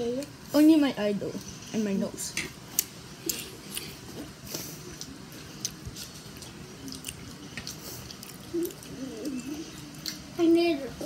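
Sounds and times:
person chewing food: 2.6s - 10.4s.

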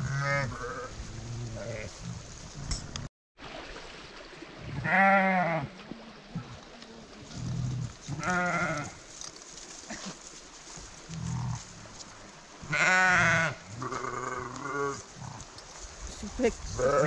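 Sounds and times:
sheep bleating: 0.0s - 0.9s, 4.8s - 5.7s, 8.1s - 9.0s, 12.7s - 15.1s, 16.8s - 17.0s.

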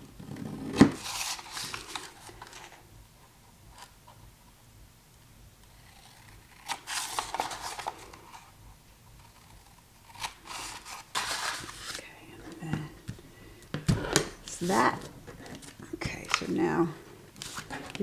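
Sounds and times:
paper rustling: 0.9s - 2.8s, 6.1s - 8.5s, 9.2s - 12.1s, 17.3s - 18.0s.

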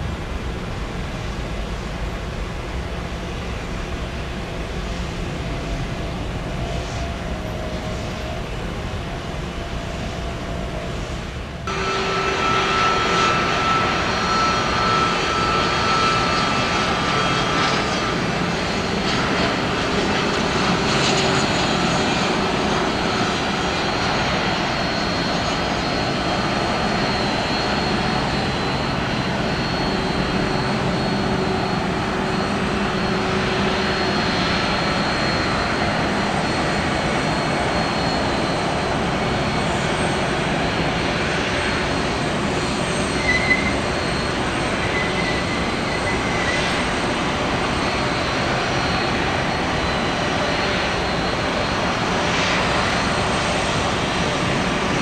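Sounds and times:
jet engines rushing: 0.0s - 55.0s
high whining tones: 11.7s - 17.3s.

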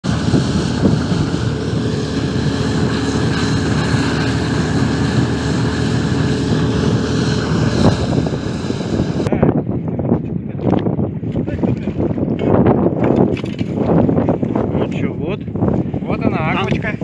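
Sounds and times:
outboard motor running: 0.0s - 9.3s
water rushing along hull: 0.0s - 9.3s.

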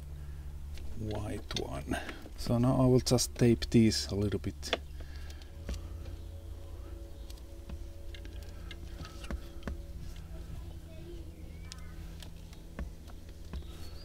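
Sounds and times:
steady low hum: 0.0s - 14.0s
light clicks of cables handled: 6.9s - 10.4s.

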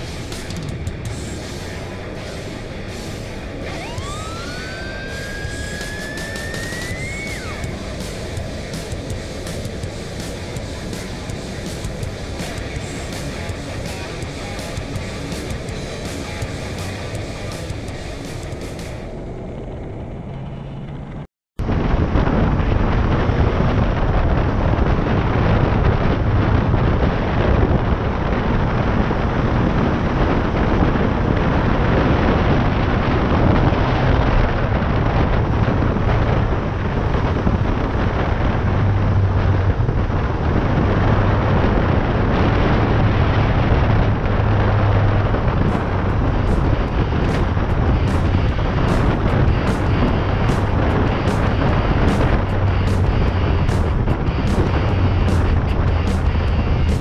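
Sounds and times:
music: 0.0s - 19.1s, 45.6s - 57.0s
motorcycle engine drone: 0.0s - 57.0s
wind buffeting microphone: 0.0s - 57.0s.

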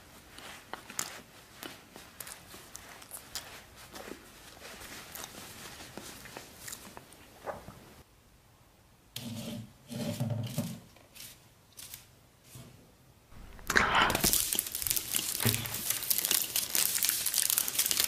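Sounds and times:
fingers scratching wicker basket: 14.2s - 18.0s.

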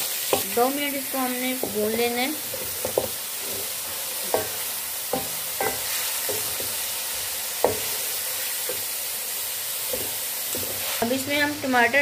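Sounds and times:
meat sizzling in oil: 0.0s - 12.0s
wooden spatula knocking pan: 1.5s - 6.8s, 7.6s - 8.0s.

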